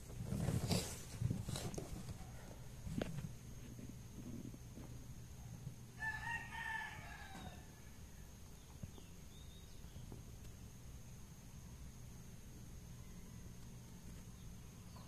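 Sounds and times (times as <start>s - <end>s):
rooster crowing: 5.9s - 8.3s, 12.9s - 14.0s.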